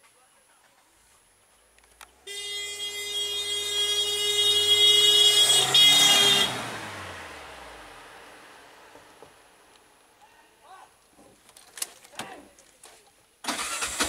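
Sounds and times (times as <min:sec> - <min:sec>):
vehicle horn blast: 0:02.2 - 0:07.1.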